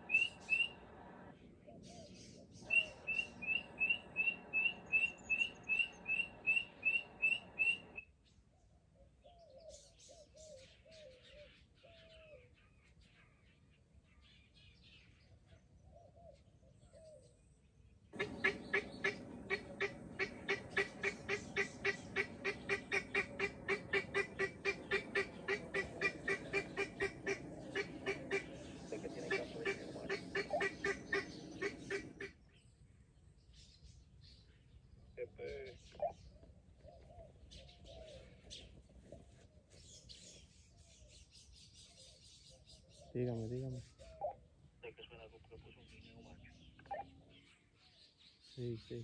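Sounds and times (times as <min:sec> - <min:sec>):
guineafowl cackling: 0:00.0 - 0:08.0, 0:18.2 - 0:32.4
small birds chirping: 0:00.0 - 0:49.0.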